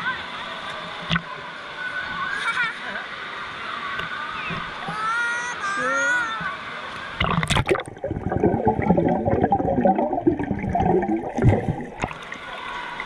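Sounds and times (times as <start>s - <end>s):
water churning and gurgling: 7.1s - 13.0s.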